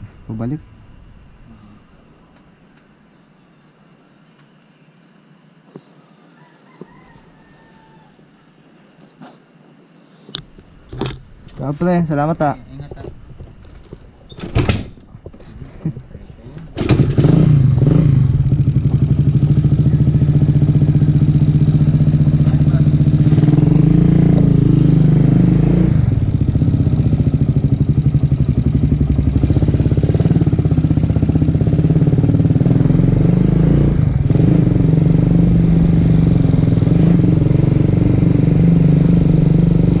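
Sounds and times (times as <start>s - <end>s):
motorcycle engine running: 16.8s - 40.0s.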